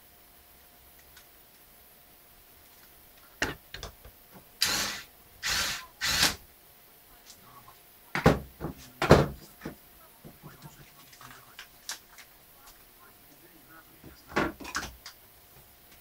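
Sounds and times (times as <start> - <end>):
screwdriver rasping: 4.6 - 6.4
tool knocking on wooden desk: 8.2 - 10.4.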